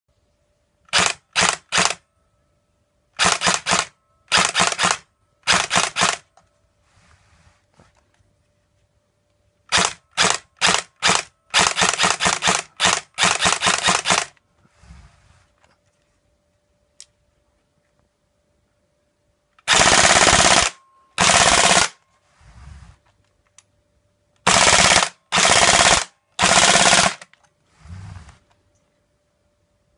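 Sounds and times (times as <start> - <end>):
airsoft gun firing bursts: 0.9 - 2.0, 3.2 - 6.2, 9.7 - 14.3, 19.7 - 22.0, 24.5 - 27.3.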